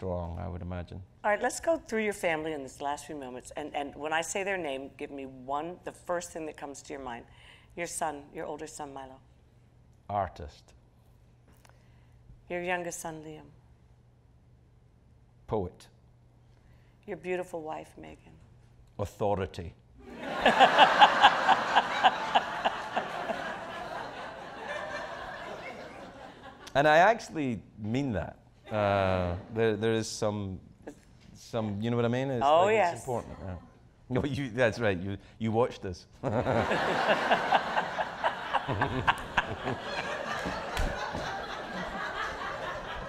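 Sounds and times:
loud pulsing laugh: 20.1 - 26.4, 36.3 - 43.0
audience laughing: 20.1 - 26.7, 36.3 - 43.0.

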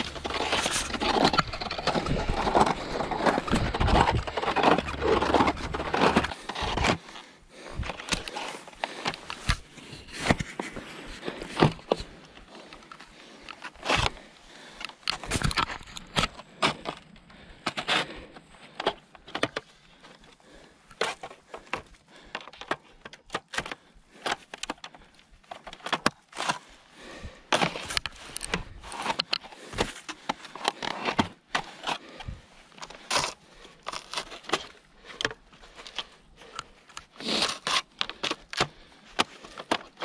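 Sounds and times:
skis scraping over hard snow: 0.0 - 6.8.

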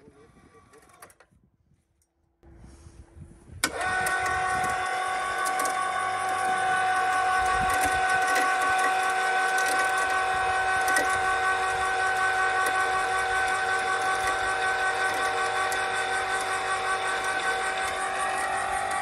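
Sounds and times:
electric motor whining: 2.4 - 19.0
motor switch click: 3.6 - 19.0.

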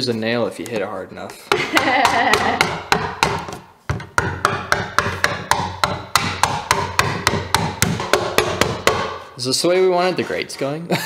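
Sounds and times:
rubber mallet hammering screws: 1.5 - 9.3.

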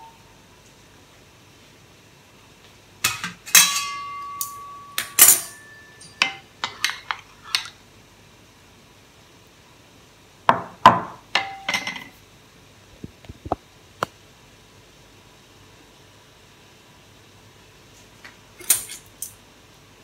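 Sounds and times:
metal spoon clinking on steel pan: 3.0 - 7.7.

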